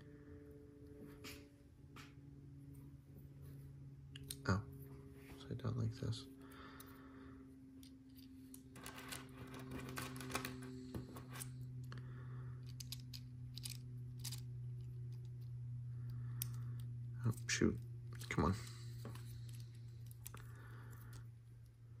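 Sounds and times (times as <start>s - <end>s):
steady low hum: 0.0s - 22.0s
plastic pieces clicking and rattling: 12.6s - 14.4s.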